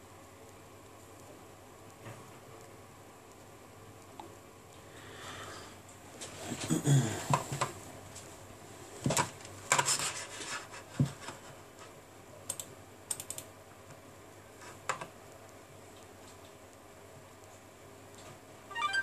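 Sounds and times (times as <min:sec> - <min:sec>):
fingers clicking on smartphone: 0:12.5 - 0:13.5.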